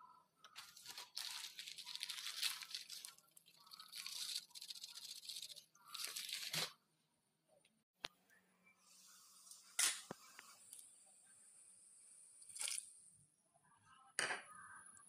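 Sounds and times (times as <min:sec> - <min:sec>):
plastic packet crinkling: 0:00.6 - 0:06.7.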